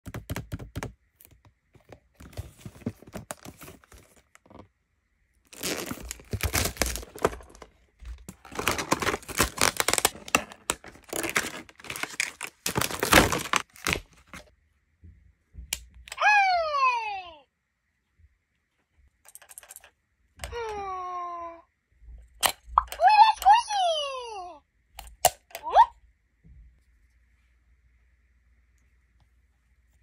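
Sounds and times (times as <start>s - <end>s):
plastic packaging crinkling: 5.5s - 14.5s.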